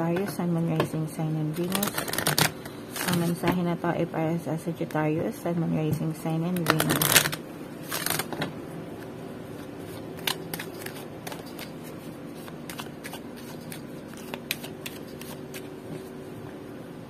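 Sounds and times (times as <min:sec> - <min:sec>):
faint steady hum: 0:00.0 - 0:17.0
cards being shuffled: 0:01.6 - 0:03.4, 0:06.6 - 0:08.4, 0:09.6 - 0:16.1.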